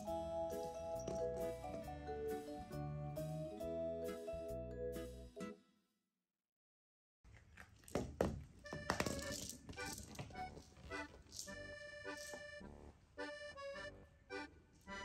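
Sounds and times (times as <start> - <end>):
rattle: 9.0 - 12.6.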